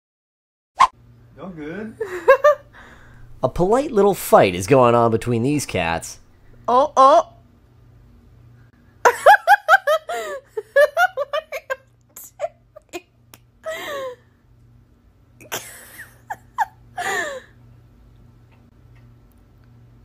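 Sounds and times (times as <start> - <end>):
person laughing: 2.0 - 2.7, 9.0 - 14.2, 15.4 - 17.5.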